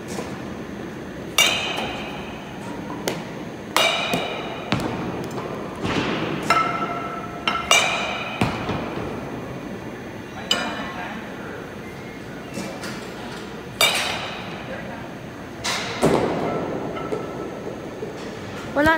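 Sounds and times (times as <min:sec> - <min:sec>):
bat striking baseball: 0:01.3 - 0:09.2.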